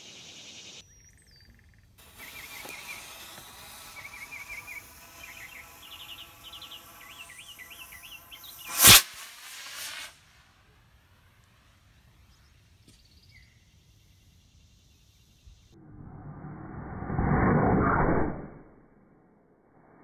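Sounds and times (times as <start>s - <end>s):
birds chirping: 0.0s - 3.2s, 3.9s - 8.7s
model rocket motor whoosh: 2.0s - 10.1s.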